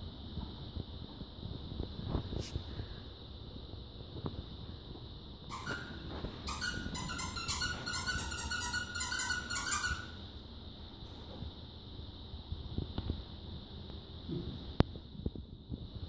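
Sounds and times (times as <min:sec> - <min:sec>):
squeaky dog toy squeaking: 0:05.5 - 0:10.2.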